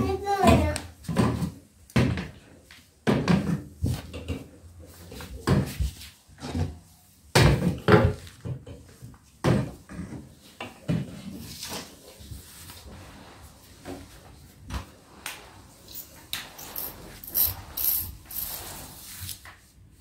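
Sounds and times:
mop sliding scrapes: 9.9s - 20.0s.

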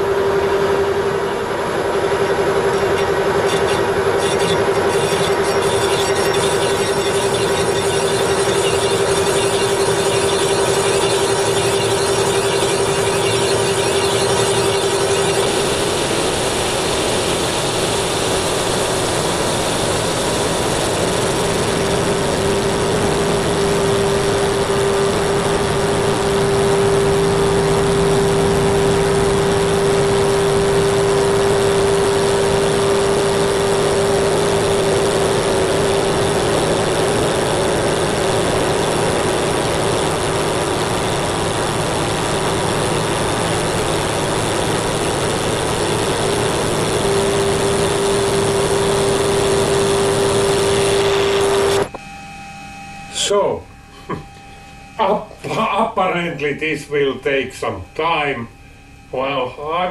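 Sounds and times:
metal lathe turning steel: 2.7s - 15.7s.

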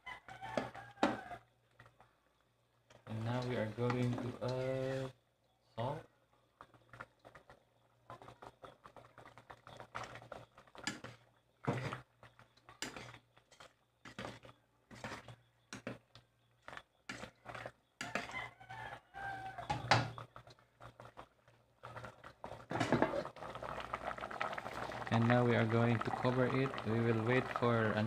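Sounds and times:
spoon scraping metal pot: 3.0s - 5.1s, 8.4s - 21.2s.

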